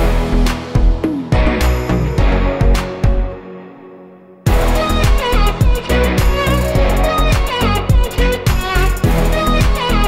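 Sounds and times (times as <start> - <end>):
string melody with sliding notes: 0.0 - 10.0
heavy drum beat: 4.5 - 10.0.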